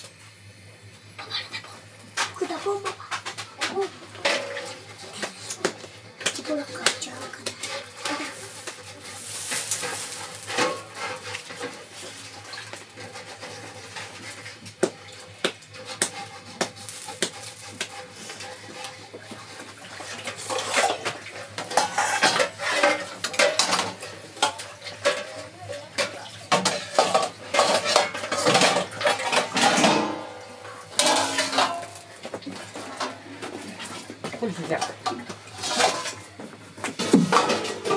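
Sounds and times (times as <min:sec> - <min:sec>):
dough patting and scraping: 0:04.8 - 0:24.4
metal dishes clinking: 0:20.1 - 0:33.2, 0:34.8 - 0:36.2, 0:37.0 - 0:37.9.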